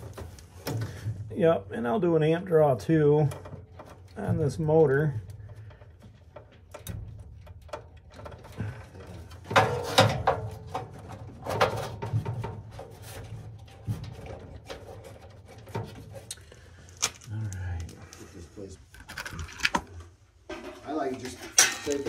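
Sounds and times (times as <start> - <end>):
clicks knocks and rustles: 3.3 - 18.0
scraping clatter on sheet metal: 5.2 - 16.3.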